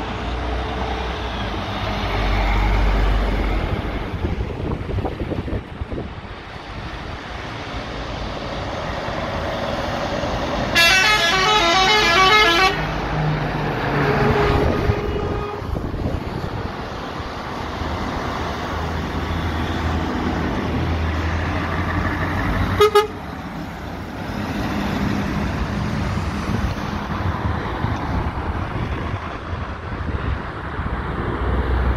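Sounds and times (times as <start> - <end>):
truck diesel engines: 0.0 - 31.9
truck air horn tune: 10.7 - 12.9, 14.0 - 15.8, 22.8 - 23.2.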